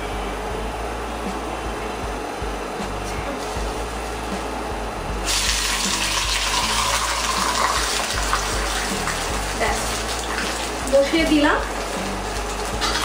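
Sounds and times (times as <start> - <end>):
hot oil sizzling: 5.2 - 13.0.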